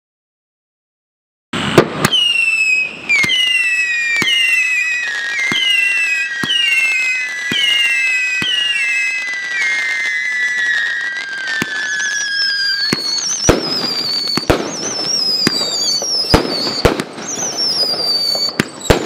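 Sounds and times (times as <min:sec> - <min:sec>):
firework launch pops: 0:01.6 - 0:02.4, 0:03.0 - 0:04.7, 0:05.3 - 0:09.4, 0:12.7 - 0:19.0
falling firework whistles: 0:01.6 - 0:19.0.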